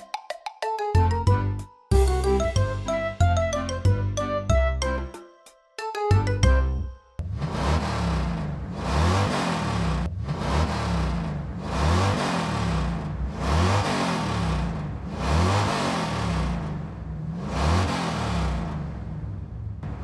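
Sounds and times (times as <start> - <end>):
engine revving: 7.2 - 20.0.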